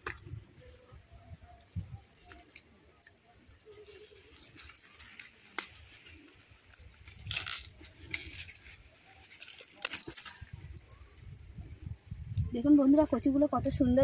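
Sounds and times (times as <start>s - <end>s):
plants rustling in soil: 0.0s - 11.3s.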